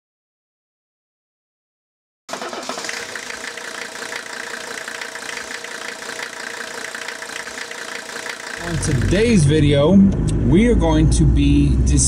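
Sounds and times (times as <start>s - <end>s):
engine idling with clatter: 2.3s - 9.7s.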